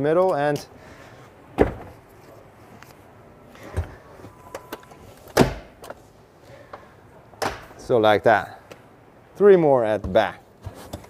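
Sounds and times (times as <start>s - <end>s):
loud thud: 1.6s - 1.9s.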